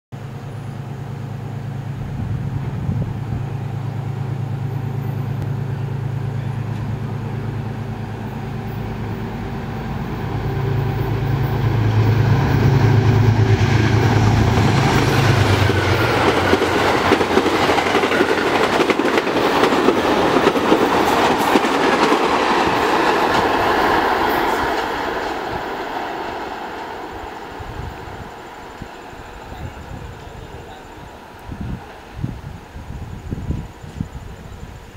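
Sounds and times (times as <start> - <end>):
locomotive diesel engine drone: 0.2 - 33.4
train wheels clattering on rails: 6.5 - 32.6.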